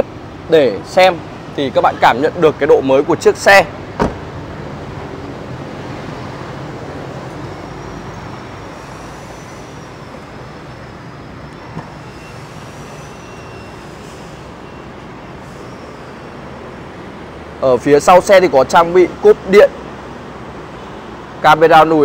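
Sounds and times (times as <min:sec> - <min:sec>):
roadway traffic rush: 0:00.0 - 0:22.0
faint high wavering tone: 0:07.3 - 0:14.9.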